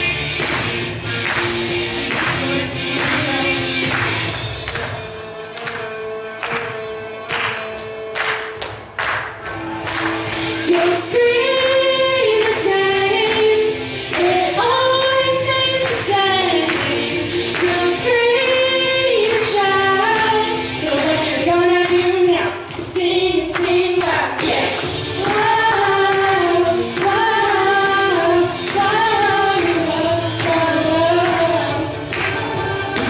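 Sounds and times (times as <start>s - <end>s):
backing music: 0.0s - 33.0s
children singing into microphones: 10.2s - 33.0s.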